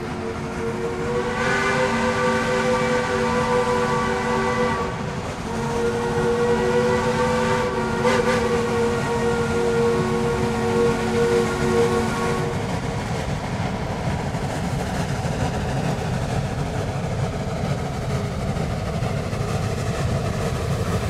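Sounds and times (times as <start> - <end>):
steam locomotive chime whistle: 0.0 - 12.6
steam hiss: 0.0 - 21.0.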